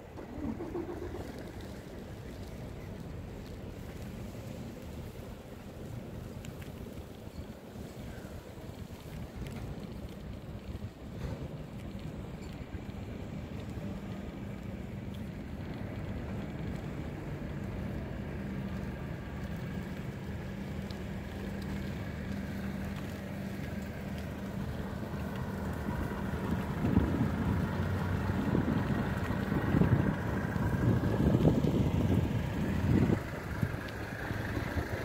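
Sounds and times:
bicycle riding on asphalt: 0.0 - 35.0
wind buffeting microphone: 24.5 - 35.0.

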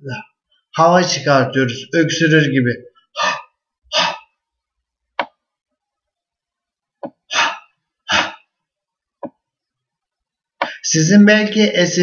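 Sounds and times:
man's breathy h sounds: 3.2 - 4.2, 7.2 - 8.5.

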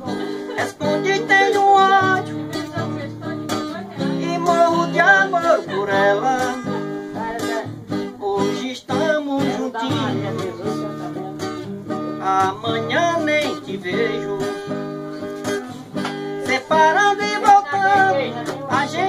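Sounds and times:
man singing: 0.0 - 19.0
strummed acoustic guitar: 0.0 - 19.0.

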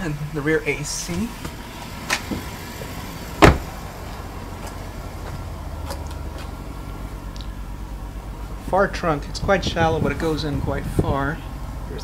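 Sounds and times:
car engine idling: 0.0 - 12.0
trunk lid clicks: 1.1 - 3.8.

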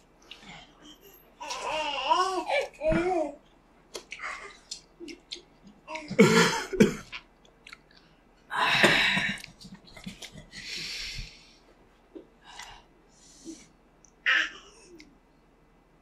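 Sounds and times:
person coughing: 6.1 - 7.1
wet chewing clicks: 7.1 - 8.1.

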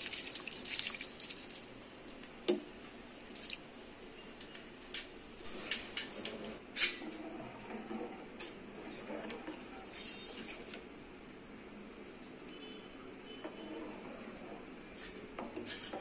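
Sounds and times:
rice splashing into boiling water: 0.0 - 1.8.

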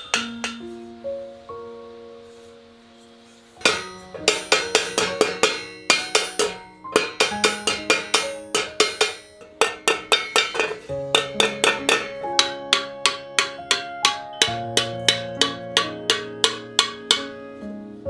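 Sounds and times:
hammer tapping copper teapot: 0.0 - 0.7, 3.6 - 17.4
soft background music: 0.0 - 18.0.

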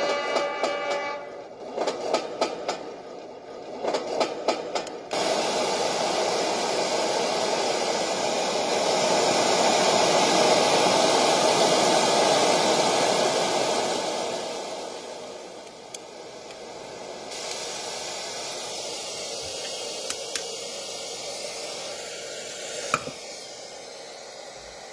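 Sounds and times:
train wheel clacks: 0.0 - 5.3.

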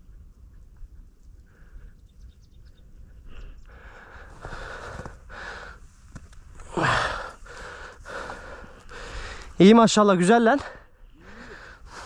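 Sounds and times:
person breathing hard: 3.2 - 5.9, 6.6 - 9.6, 10.7 - 12.0.

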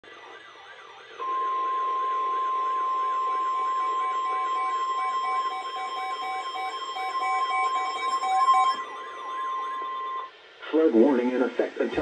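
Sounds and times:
warbling siren: 0.1 - 10.4
steady warning tone: 0.1 - 12.0
rapid even beeping: 3.3 - 10.4.

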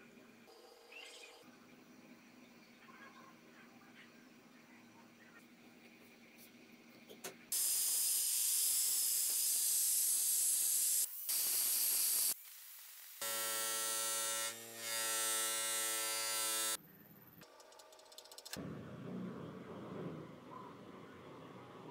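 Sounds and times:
grinder disc hissing on resin: 7.5 - 12.4
bench grinder motor whine: 13.2 - 16.8.

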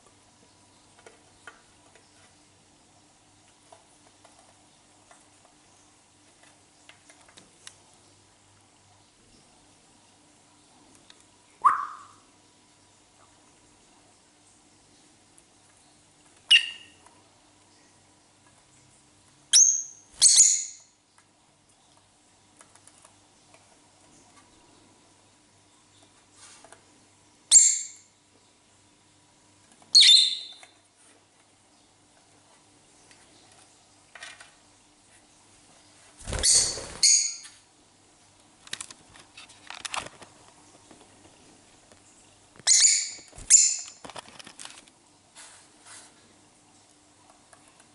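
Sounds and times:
lovebird shrieking: 11.6 - 12.2
lovebird shrill calls: 11.6 - 12.2, 16.5 - 17.0, 19.5 - 20.8, 29.9 - 30.6, 36.3 - 37.5, 42.7 - 44.0.

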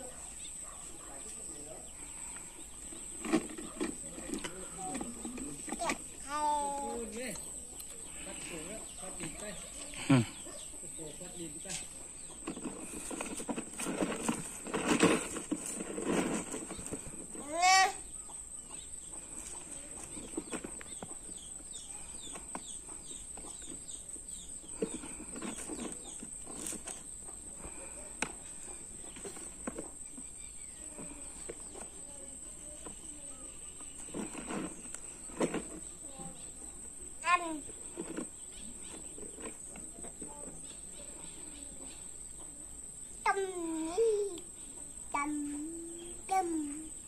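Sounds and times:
high insect drone: 40.5 - 47.0.

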